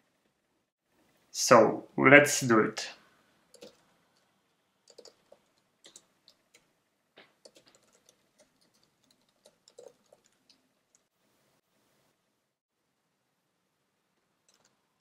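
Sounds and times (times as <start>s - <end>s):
faint keyboard keystrokes: 4.9s - 11.1s.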